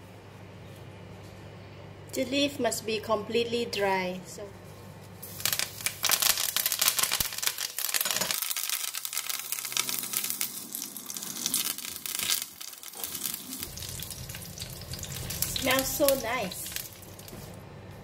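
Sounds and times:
leaves crackling in hot oil: 5.1 - 17.6.

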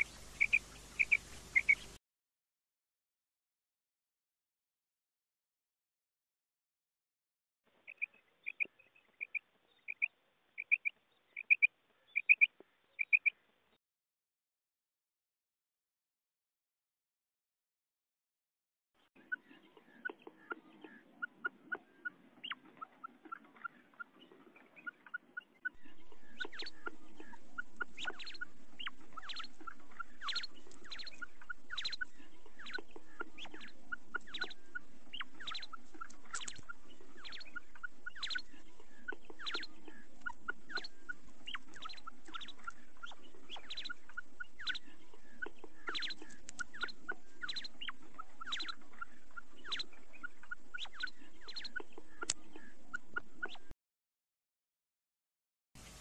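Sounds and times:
quail calling: 0.0 - 2.0, 7.9 - 13.4, 19.2 - 53.7
steady hiss: 0.0 - 2.0, 55.8 - 56.0.

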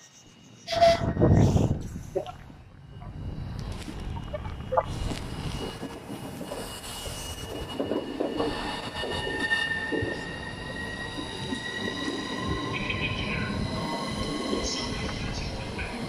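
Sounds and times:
high brake squeal: 0.3 - 1.7
train wheels rumbling on rail: 3.2 - 16.0.

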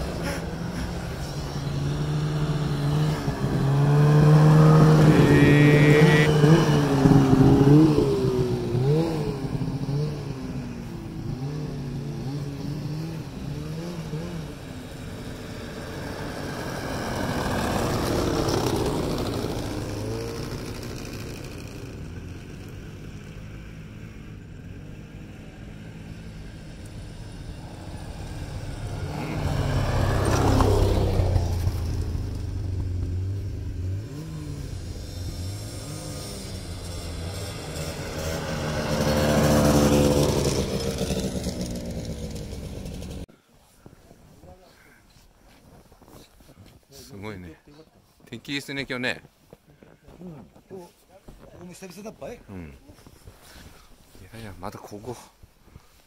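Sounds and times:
snowmobile engine revving: 0.0 - 43.3.

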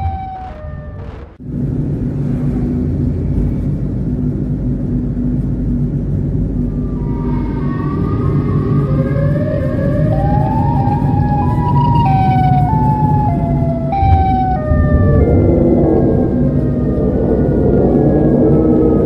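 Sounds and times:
siren wailing: 0.0 - 1.4, 6.6 - 19.0
car road and engine rumble: 0.0 - 19.0.

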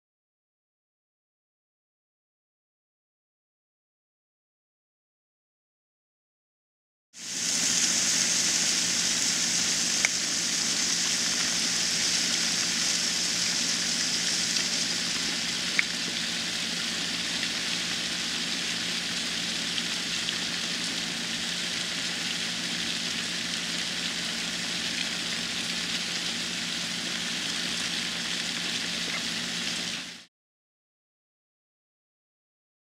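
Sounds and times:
roaches crawling rustling hiss: 7.2 - 20.2
low hum: 7.2 - 30.3.

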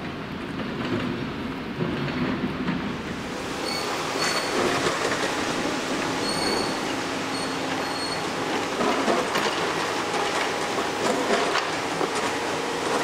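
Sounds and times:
street and machinery rumble: 0.0 - 13.0
tram wheels squealing on rails: 3.4 - 13.0.

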